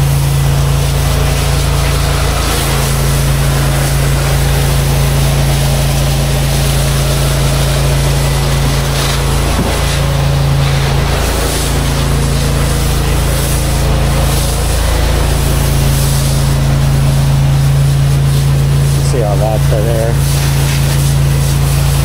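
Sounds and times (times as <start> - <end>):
pressure washer engine hum: 0.0 - 22.0
water spraying hiss: 0.0 - 22.0.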